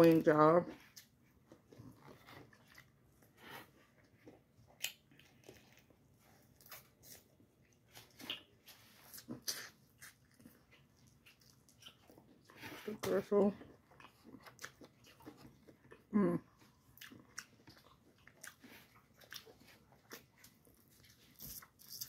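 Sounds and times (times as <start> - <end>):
mouth clicks and smacks chewing: 4.1 - 5.9, 6.6 - 12.7, 13.6 - 22.0.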